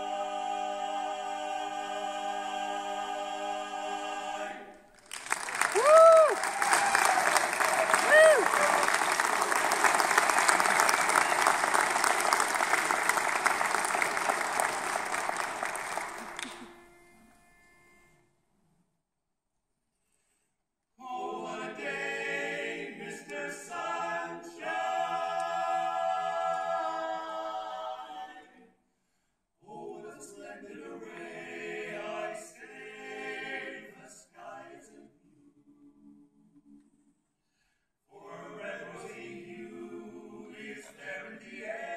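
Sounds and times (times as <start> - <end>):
male vocal quartet singing: 0.0 - 4.9, 21.0 - 28.7, 29.6 - 35.3, 38.1 - 41.9
audience applauding: 5.0 - 16.9.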